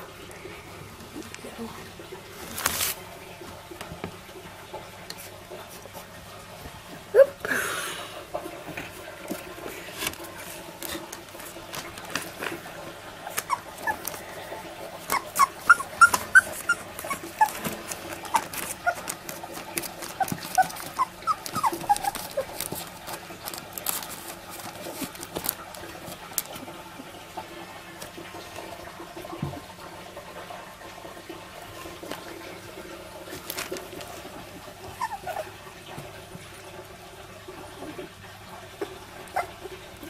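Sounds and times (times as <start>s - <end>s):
newspaper bedding rustling: 2.3s - 3.1s, 9.4s - 14.2s, 15.0s - 26.7s, 33.2s - 35.1s
puppies squeaking and whimpering: 13.2s - 14.3s, 14.9s - 24.1s, 34.9s - 35.6s, 39.3s - 39.6s.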